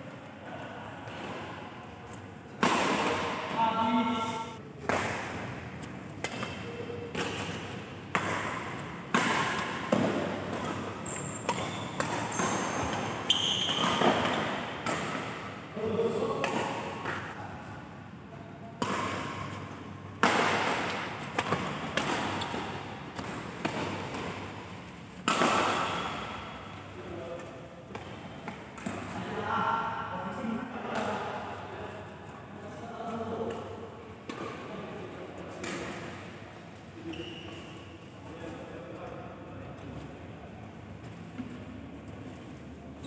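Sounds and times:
rackets hitting shuttlecock: 2.1 - 3.6, 4.8 - 15.6, 18.8 - 26.9
shoes squeaking on court floor: 10.4 - 15.0, 21.3 - 24.2, 37.0 - 37.9.

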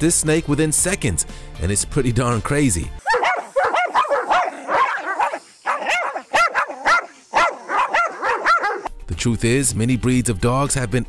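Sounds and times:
dog barking rapidly: 3.0 - 8.9.

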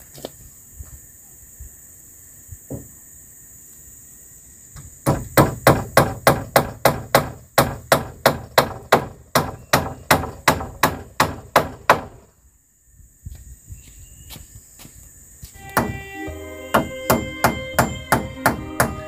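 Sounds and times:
tool striking wood: 5.0 - 12.2, 15.7 - 16.0, 16.7 - 19.0.

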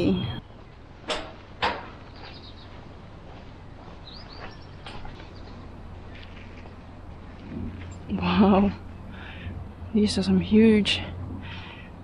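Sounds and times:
small birds chirping: 0.0 - 12.0
sharp knocks: 1.1 - 2.0.

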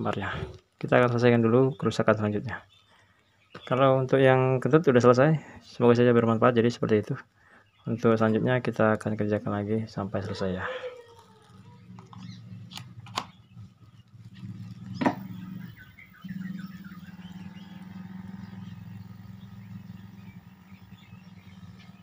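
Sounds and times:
faint bird chirps: 10.2 - 22.0
low hum: 11.4 - 22.0.

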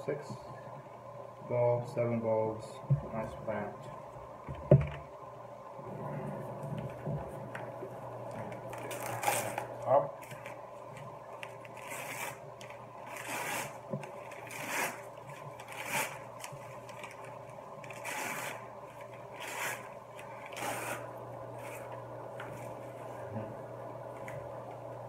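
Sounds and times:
paper and plastic wrapping rustling: 8.4 - 21.0.

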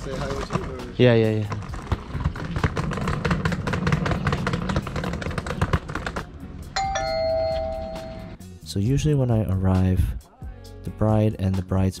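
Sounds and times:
two-note doorbell chime: 6.8 - 8.4.

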